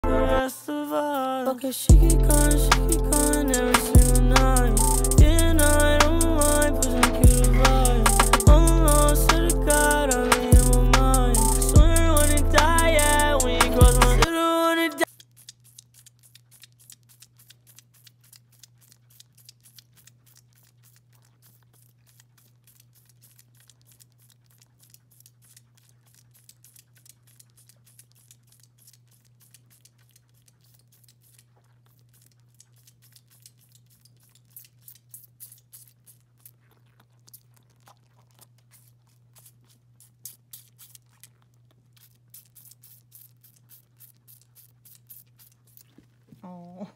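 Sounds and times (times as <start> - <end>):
goat sucking on bottle: 0.6 - 46.6
steady low hum: 1.9 - 14.3.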